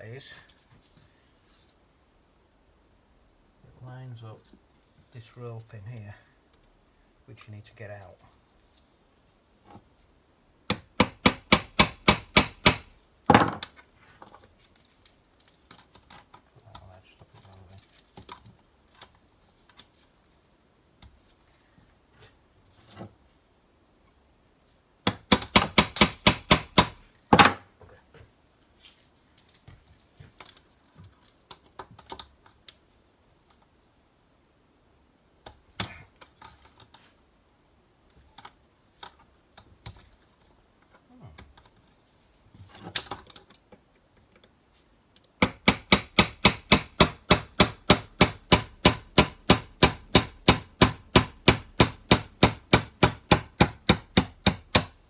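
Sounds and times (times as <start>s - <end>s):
hammer striking pin punch: 10.7s - 12.9s, 25.1s - 27.5s, 45.4s - 55.0s.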